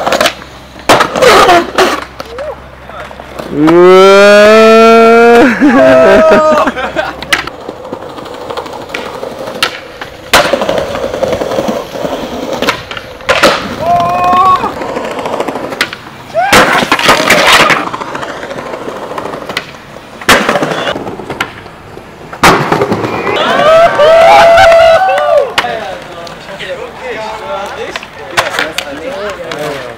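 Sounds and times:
skateboard cracking on landings: 0.0 - 3.9, 7.2 - 23.7, 27.6 - 29.9
skateboard wheels rolling on concrete: 0.0 - 29.9.

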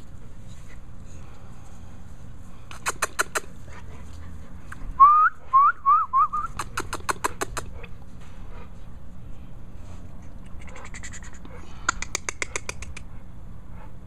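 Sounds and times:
sharp clicks: 2.7 - 3.5, 6.6 - 7.7, 10.4 - 13.1
person whistling rising notes: 5.0 - 6.5.

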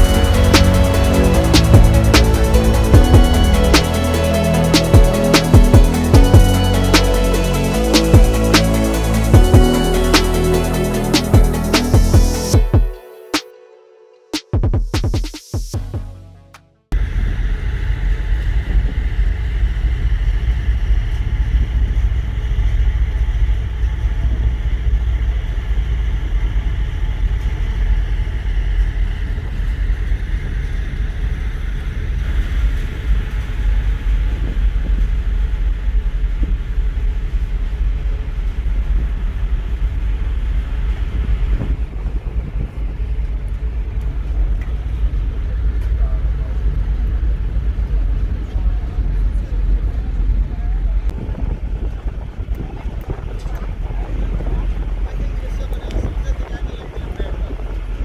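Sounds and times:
ferry engines rumbling: 0.0 - 13.3, 15.8 - 58.0
wind buffeting microphone: 17.0 - 58.0.

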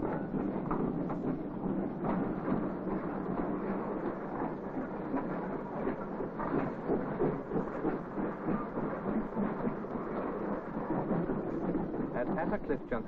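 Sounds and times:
train rumbling on rails: 0.0 - 13.0.

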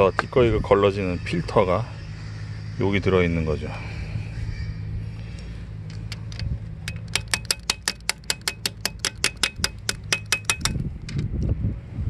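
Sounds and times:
steady low hum: 0.0 - 12.0
socket ratchet clicking: 5.9 - 11.2.

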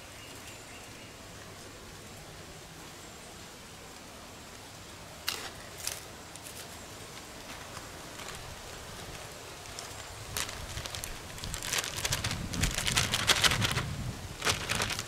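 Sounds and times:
faint outdoor hiss: 0.0 - 15.0
plastic bag crinkling: 7.5 - 15.0.

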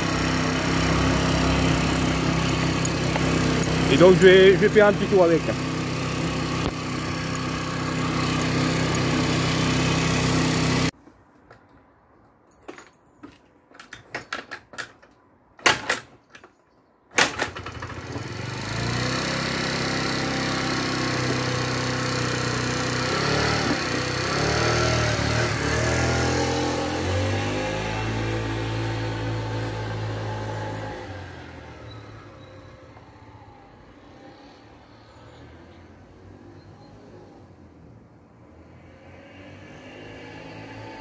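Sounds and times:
scooter engine revving: 0.0 - 11.0, 17.3 - 32.2.

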